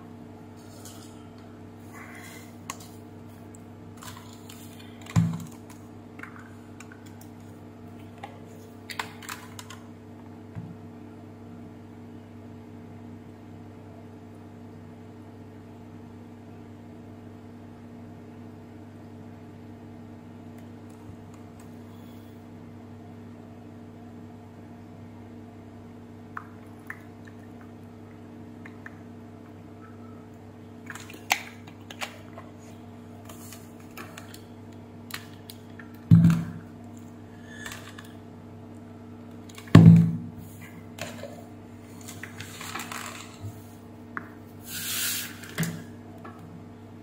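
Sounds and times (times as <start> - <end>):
steady low hum: 0.0 - 47.0
steam iron hiss: 44.6 - 45.5.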